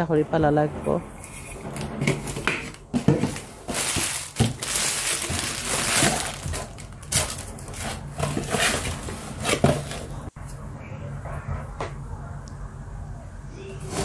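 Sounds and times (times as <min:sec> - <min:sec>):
cardboard and foil crinkling: 0:01.6 - 0:10.3.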